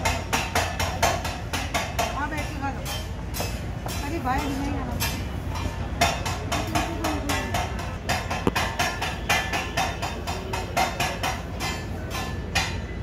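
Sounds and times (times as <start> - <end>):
spatula clanking on iron griddle: 0.0 - 13.0.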